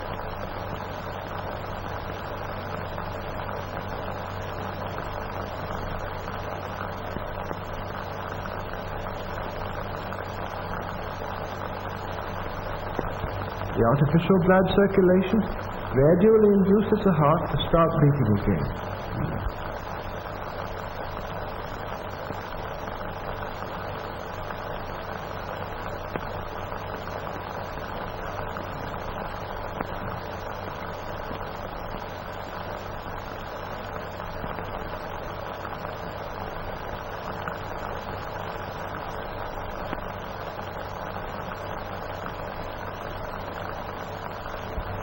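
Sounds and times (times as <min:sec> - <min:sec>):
film soundtrack hiss and hum: 0:00.0 - 0:45.0.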